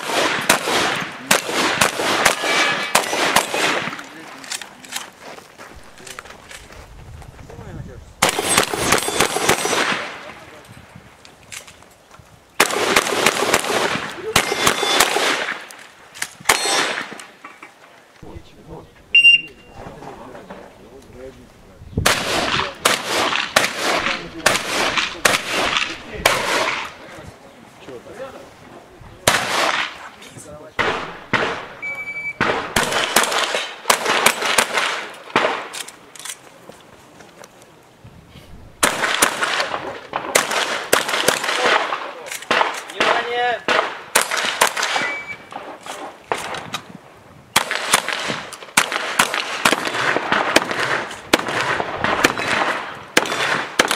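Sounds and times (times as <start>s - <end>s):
shotgun shots with echo: 0.0s - 4.2s, 8.2s - 10.4s, 12.6s - 15.7s, 16.5s - 17.2s, 22.0s - 27.0s, 29.2s - 30.0s, 30.8s - 35.7s, 38.8s - 46.6s, 47.6s - 53.9s.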